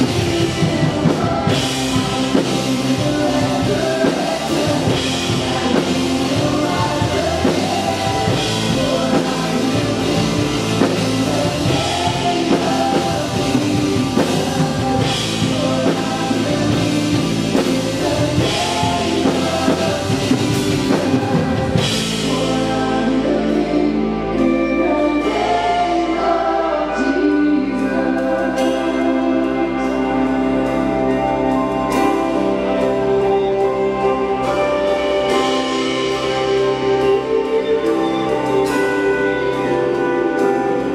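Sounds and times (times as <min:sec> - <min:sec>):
drums and cymbals: 0:00.0 - 0:24.5, 0:29.8 - 0:40.9
electric guitars: 0:00.0 - 0:40.9
keyboard: 0:00.0 - 0:40.9
voices singing: 0:00.0 - 0:40.9.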